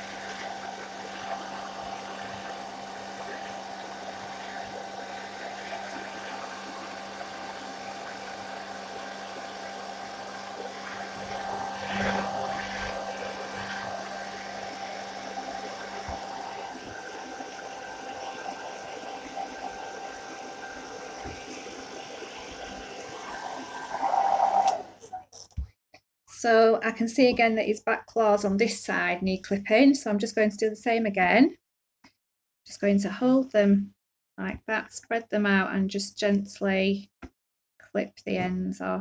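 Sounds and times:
hairdryer whirring: 0.0s - 25.2s.

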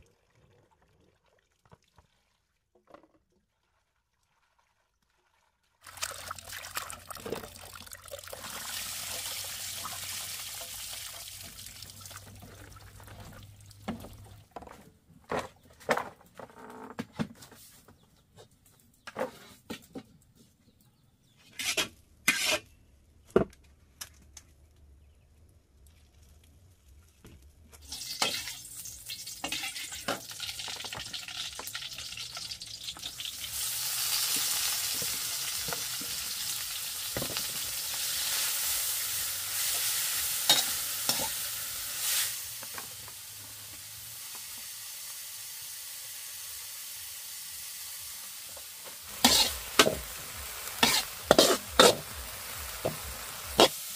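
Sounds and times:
food sizzling in a pan: 8.5s - 12.0s, 27.8s - 53.9s.

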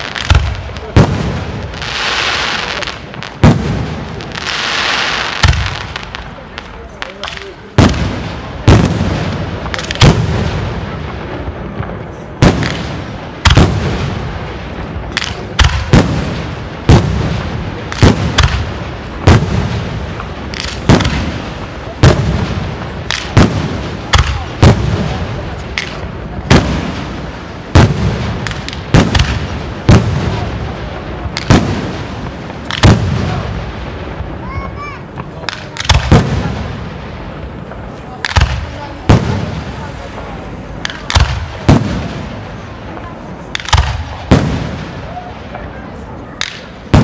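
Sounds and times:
firework shells booming: 0.0s - 47.0s.

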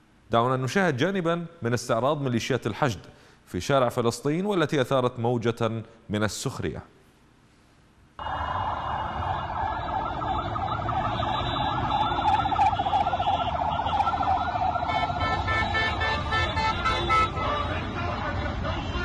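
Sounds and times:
traffic noise: 8.1s - 19.0s
siren warbling: 8.2s - 16.2s
car horn toots: 11.1s - 14.1s, 14.9s - 19.0s.

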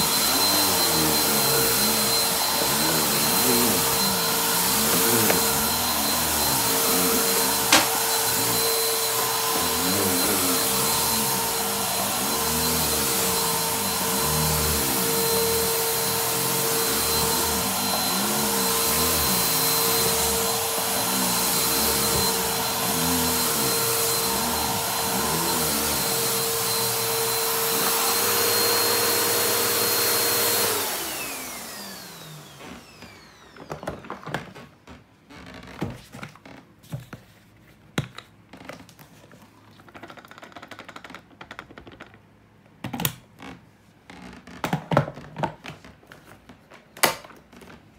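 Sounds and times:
vacuum cleaner whining: 0.0s - 36.6s.

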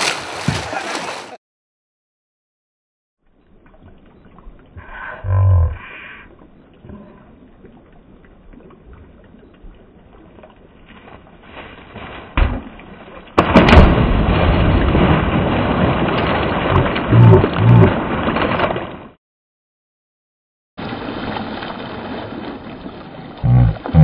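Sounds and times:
flowing water: 3.2s - 12.0s.

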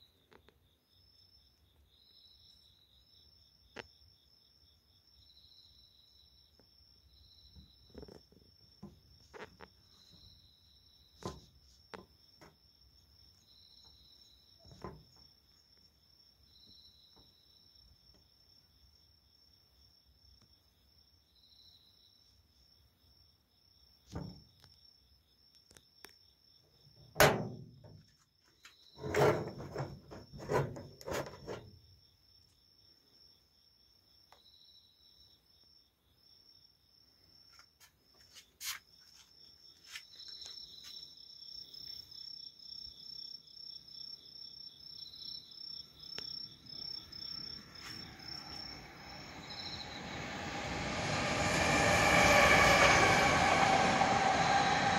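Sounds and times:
insects trilling: 38.4s - 54.9s
insect chirping phrase: 44.7s - 54.9s.

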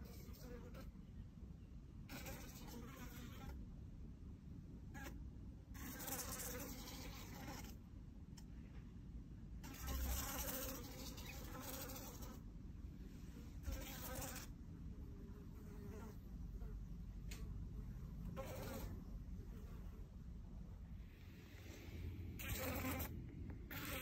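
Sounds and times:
fly buzzing on a window: 2.1s - 3.6s, 5.8s - 7.8s, 9.6s - 12.4s, 13.6s - 14.5s, 18.3s - 19.0s, 22.4s - 24.0s.

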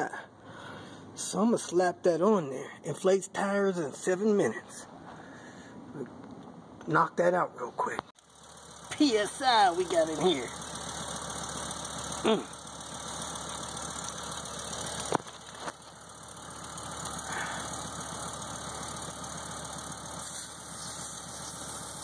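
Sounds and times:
low engine-like rumble: 7.8s - 22.0s
short air hiss: 20.2s - 22.0s.

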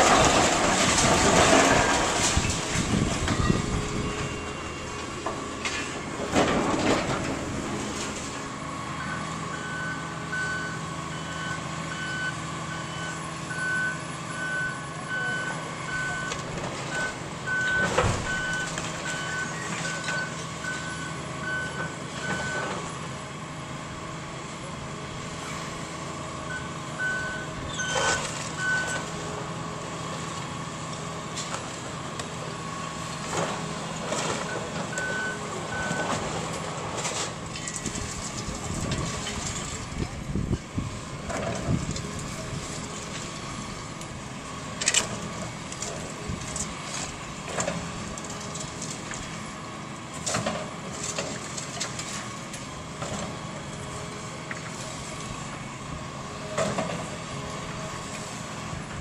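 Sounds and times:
falling debris crashing: 0.0s - 4.0s, 5.0s - 8.5s
diesel excavator engine running: 0.0s - 59.0s.

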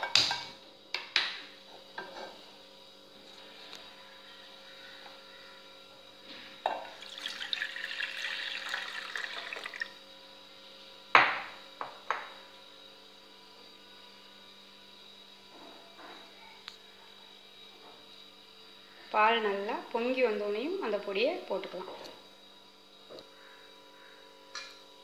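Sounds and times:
milk pouring into saucepan: 6.9s - 10.0s.

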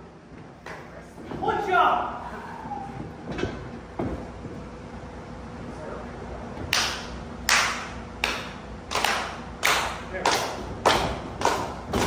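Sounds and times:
hands clapping: 6.7s - 12.0s.

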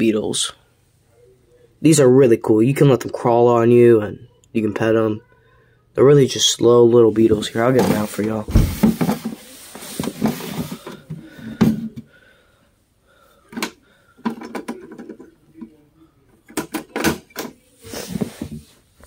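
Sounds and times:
plastic tub rustling: 7.2s - 12.0s.

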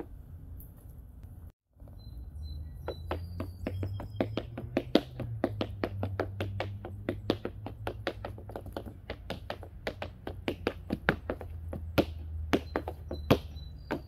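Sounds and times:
tap shoes clicking on board: 2.8s - 14.0s.

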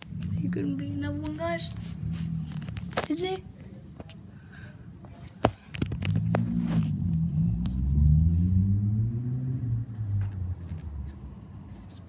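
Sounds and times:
passing vehicle engine hum: 0.0s - 12.0s
sharp crack: 5.4s - 7.8s.

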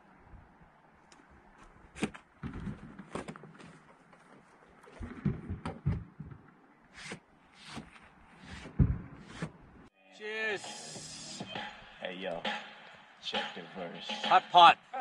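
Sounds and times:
faint outdoor hiss: 0.0s - 15.0s
knocks and thumps: 2.0s - 3.7s, 5.0s - 6.6s, 8.5s - 9.6s.

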